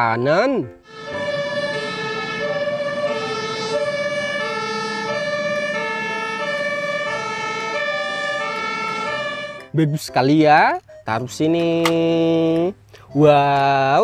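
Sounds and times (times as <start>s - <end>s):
two-tone emergency siren: 0.0s - 10.0s.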